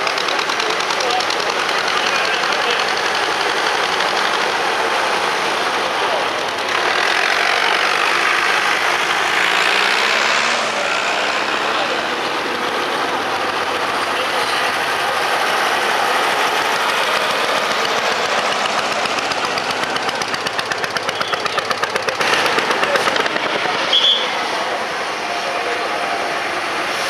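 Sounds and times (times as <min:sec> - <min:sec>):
tractor engine thumping: 0:14.8 - 0:24.2.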